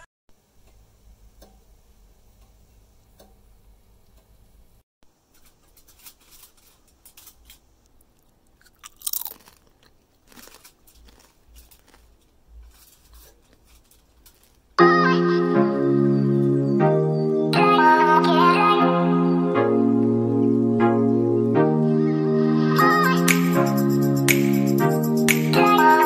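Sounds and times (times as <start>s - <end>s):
chips crunching and chewing: 5.9s - 14.8s.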